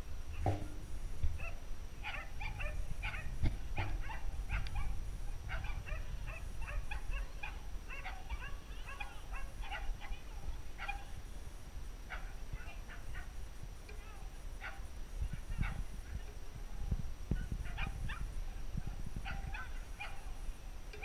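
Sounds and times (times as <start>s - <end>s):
steady low rumble: 0.0s - 21.0s
dog yipping: 1.4s - 11.1s, 12.1s - 13.3s, 14.6s - 15.8s, 17.4s - 18.6s, 19.2s - 20.3s.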